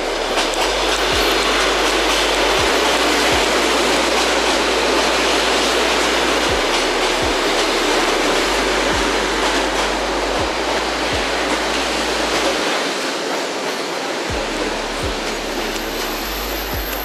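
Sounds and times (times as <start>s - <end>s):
electric train rushing: 0.0s - 17.0s.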